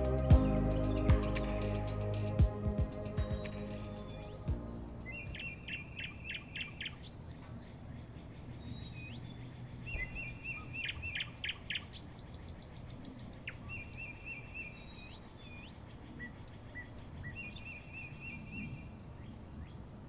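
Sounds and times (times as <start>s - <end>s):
low steady hum: 0.0s - 5.7s
bird chirping phrase: 0.0s - 7.0s.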